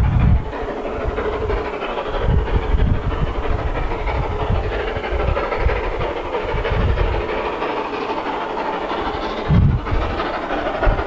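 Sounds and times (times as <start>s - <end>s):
steam hissing: 0.0s - 11.0s
steam locomotive exhaust beats: 0.0s - 11.0s.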